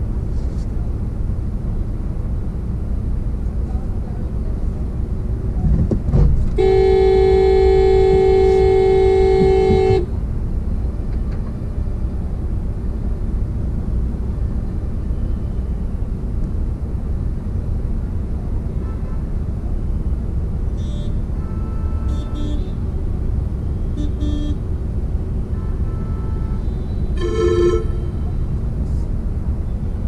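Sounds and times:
low rumble of traffic: 0:00.0 - 0:30.0
vehicle horn blast: 0:06.6 - 0:10.1, 0:20.8 - 0:22.8, 0:24.0 - 0:24.6, 0:25.5 - 0:28.4.

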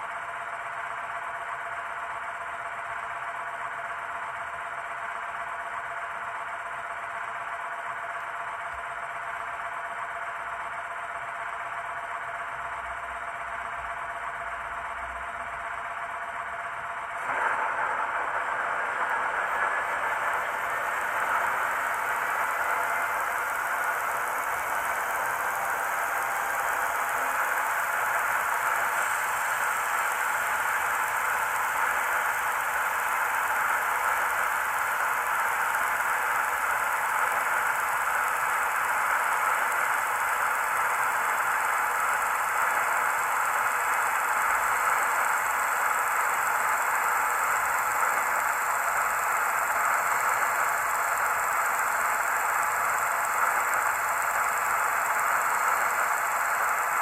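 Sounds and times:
model train hissing on track: 0:17.2 - 0:57.0.

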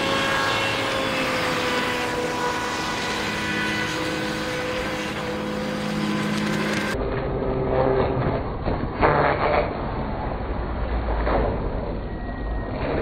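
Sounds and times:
electric motor whining: 0:00.0 - 0:07.0.

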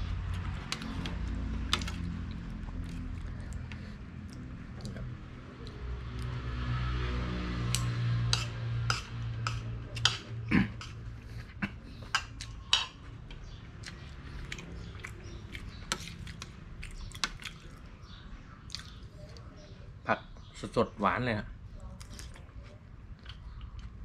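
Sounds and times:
chewing: 0:00.4 - 0:05.8, 0:09.0 - 0:17.9, 0:18.7 - 0:19.6, 0:21.9 - 0:24.0
cutlery clicking against ceramic bowl: 0:12.2 - 0:13.0.

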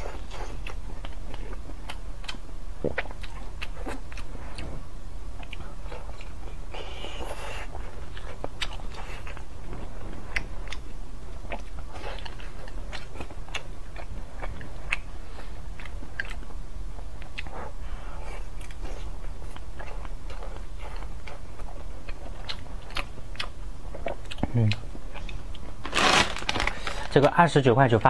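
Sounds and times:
person biting and chewing: 0:19.5 - 0:27.0.

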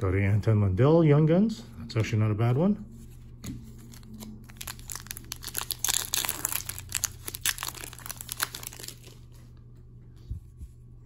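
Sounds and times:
foil wrapper crinkling: 0:03.9 - 0:09.4.

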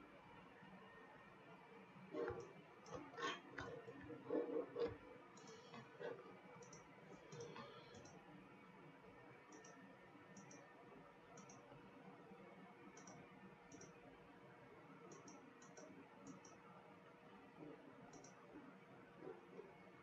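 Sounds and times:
low room hum: 0:00.0 - 0:20.0
computer mouse clicks: 0:02.2 - 0:08.2, 0:09.5 - 0:10.7, 0:11.4 - 0:11.7, 0:13.0 - 0:14.0, 0:15.0 - 0:16.6, 0:18.1 - 0:18.5.

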